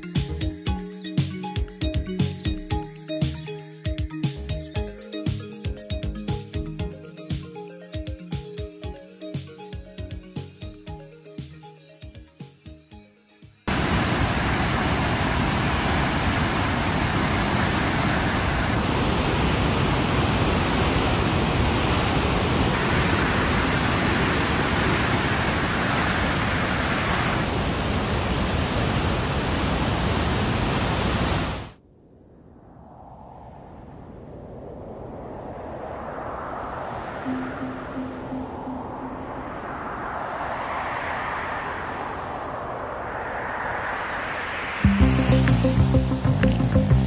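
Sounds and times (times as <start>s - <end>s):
music: 0.0s - 13.7s, 37.3s - 39.2s, 44.8s - 47.0s
floodwater rushing: 13.7s - 31.8s.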